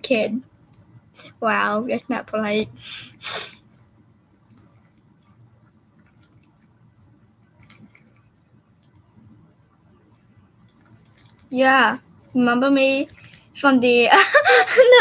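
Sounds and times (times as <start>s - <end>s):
faint small clicks: 4.5s - 5.4s.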